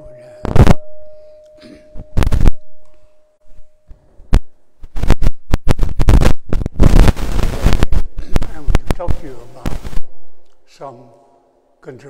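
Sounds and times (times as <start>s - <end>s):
bowl bell ringing: 0.0s - 3.9s
microphone handling clicks: 1.9s - 10.6s.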